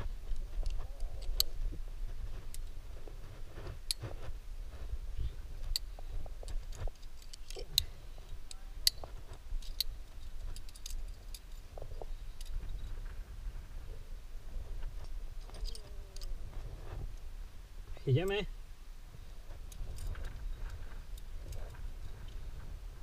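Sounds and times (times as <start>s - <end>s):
carabiners clinking together: 6.7s - 12.9s, 15.4s - 16.3s.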